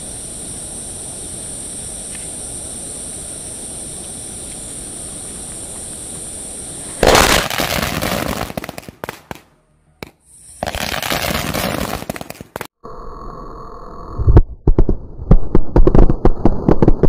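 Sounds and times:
firecrackers crackling: 6.8s - 12.7s.

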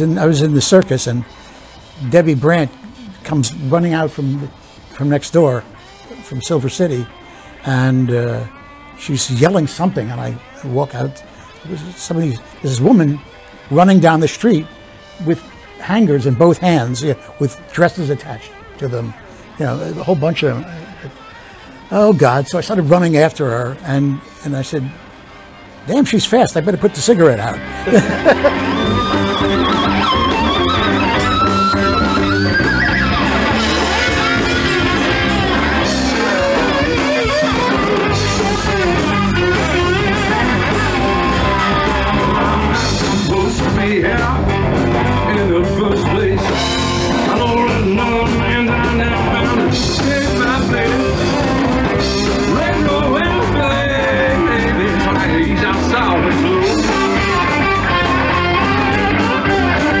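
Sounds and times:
electric guitars: 0.0s - 60.0s
live rock band playing: 0.0s - 60.0s
man singing lead: 33.5s - 60.0s.

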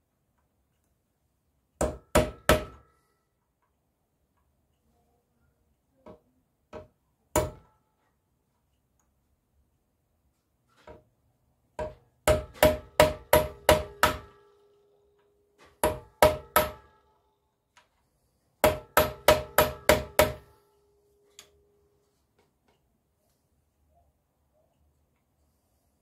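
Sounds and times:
hammer striking punch on metal: 7.4s - 7.7s, 11.8s - 14.4s, 15.8s - 16.9s, 18.6s - 20.5s.

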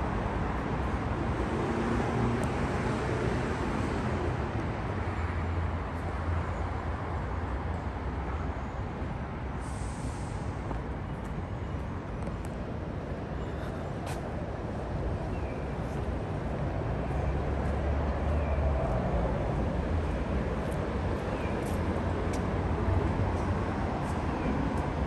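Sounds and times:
low rumble of road traffic: 0.0s - 25.0s
brief hiss: 9.6s - 10.6s.

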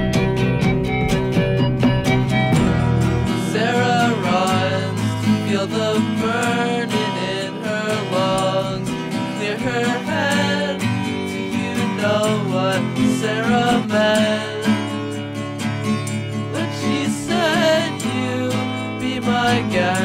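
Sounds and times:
strummed acoustic guitar: 0.0s - 20.0s
person singing: 3.3s - 15.2s, 16.5s - 20.0s.

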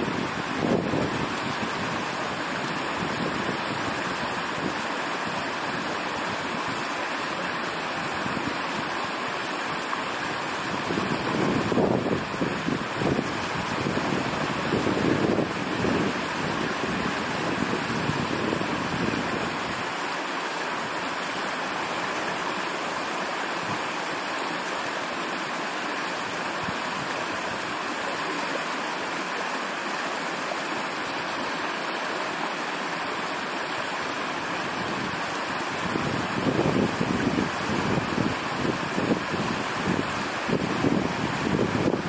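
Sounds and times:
wind rumble on microphone: 0.0s - 4.8s, 10.6s - 19.8s, 34.7s - 42.0s
stream water flowing: 0.0s - 42.0s.

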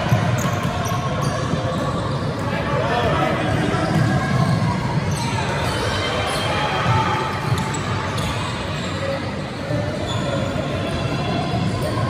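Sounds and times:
basketball bouncing on court: 0.0s - 2.4s, 3.5s - 4.9s.

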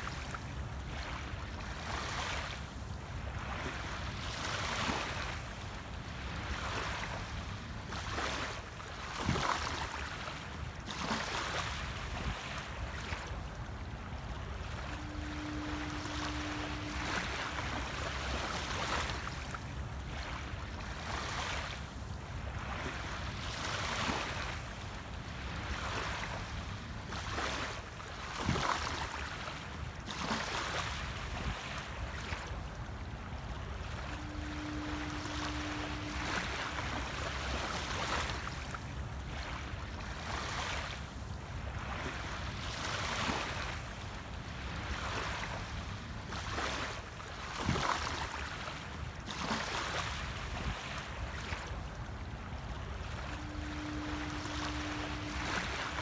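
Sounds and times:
small waves lapping on shore: 0.0s - 56.0s
steady low tone: 11.8s - 27.4s, 31.0s - 40.5s, 51.2s - 56.0s
steady low rumble: 13.6s - 21.1s.

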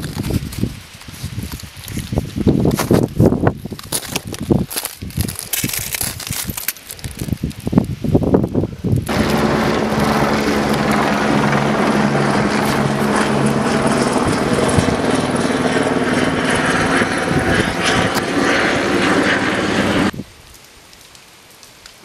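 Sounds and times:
aircraft engine drone: 9.1s - 20.1s.

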